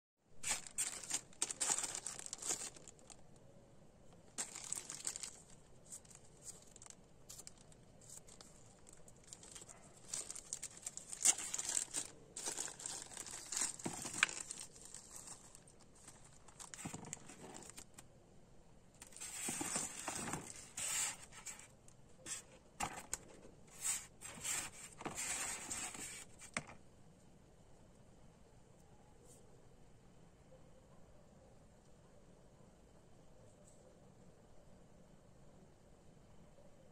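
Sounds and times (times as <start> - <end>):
plastic bag crinkling: 0.4 - 3.2, 4.3 - 18.0.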